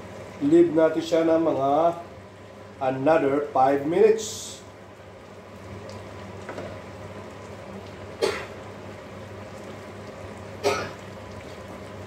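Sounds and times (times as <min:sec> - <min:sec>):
stew simmering in a pot: 0:00.0 - 0:12.0.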